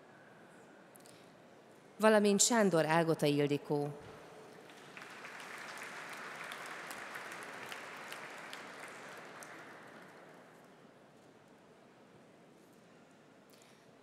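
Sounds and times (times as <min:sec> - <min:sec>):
audience applauding: 0:04.6 - 0:10.4.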